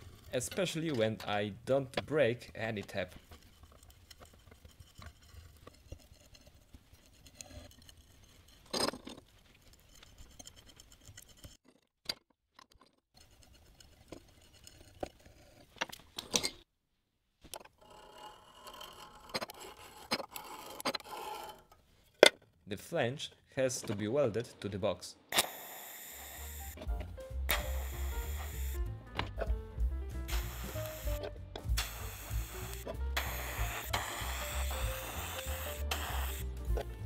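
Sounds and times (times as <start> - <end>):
metallic clicks and scrapes: 0.0 - 16.7, 17.4 - 22.5.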